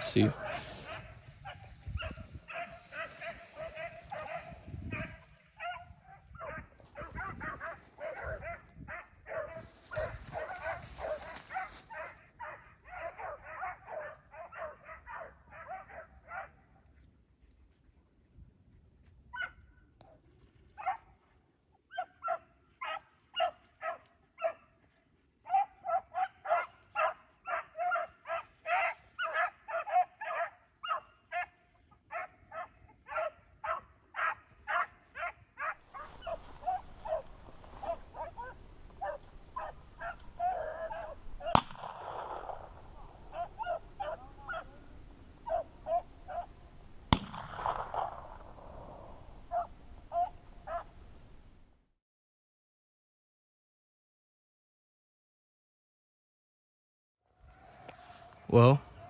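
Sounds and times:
dogs baying: 0.3 - 16.7, 25.5 - 41.8, 42.5 - 46.6, 49.5 - 50.9
sharp cracks: 41.4 - 44.0, 47.1 - 49.2.

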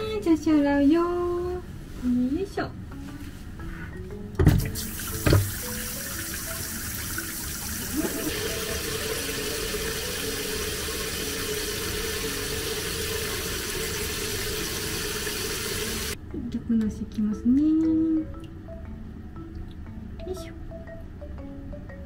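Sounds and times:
water running: 4.5 - 16.2.

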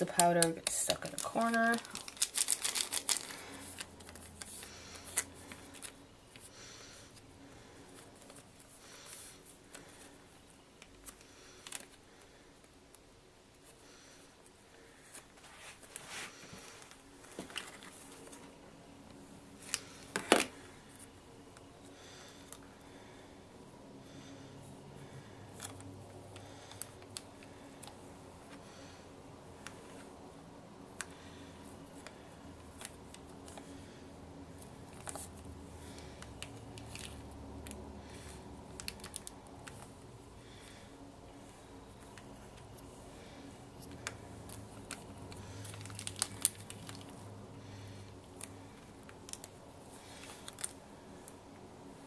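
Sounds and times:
plastic sachet crinkling: 0.0 - 6.4, 34.9 - 39.9, 43.8 - 47.2, 48.3 - 51.4
soft plastic rustle: 0.0 - 12.8, 14.8 - 21.2, 31.0 - 52.0
low steady hum: 0.0 - 52.0.

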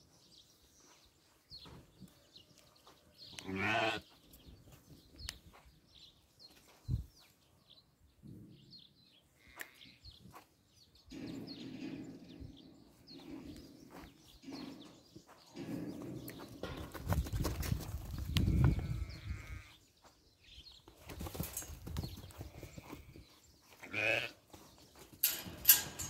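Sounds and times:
small birds chirping: 0.0 - 26.0
sheep calling low: 3.4 - 4.1, 18.5 - 19.8, 23.8 - 24.4.

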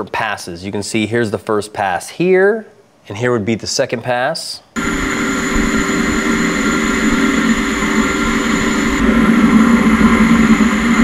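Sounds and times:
high whine: 4.8 - 11.0
lathe machining noise: 4.8 - 11.0
steady machine tones: 4.8 - 11.0.

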